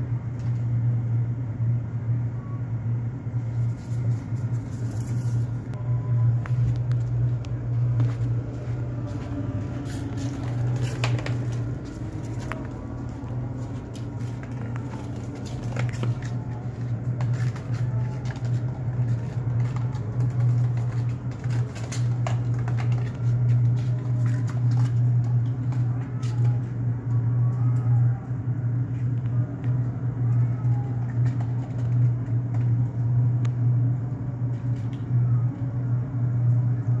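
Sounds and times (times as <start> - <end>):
low mechanical hum: 0.0 - 37.0.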